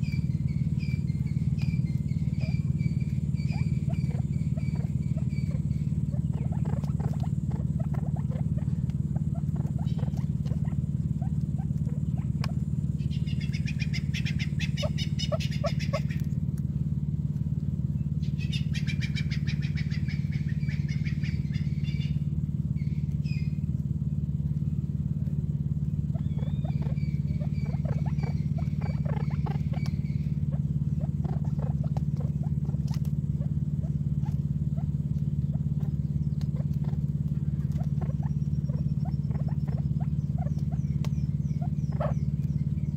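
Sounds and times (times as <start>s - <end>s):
beaks pecking plastic feeder: 0.0s - 16.6s, 26.1s - 42.9s
birds chattering calls: 0.0s - 42.9s
steady low hum: 0.0s - 42.9s
high steady bird call: 13.0s - 16.2s, 18.2s - 23.6s, 26.1s - 32.6s.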